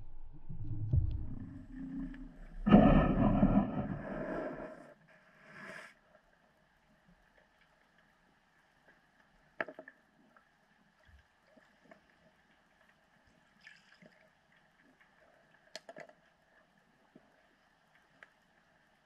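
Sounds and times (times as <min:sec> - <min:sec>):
underwater clicks and ticks: 0:00.1 - 0:03.9, 0:06.8 - 0:13.5, 0:14.3 - 0:19.0.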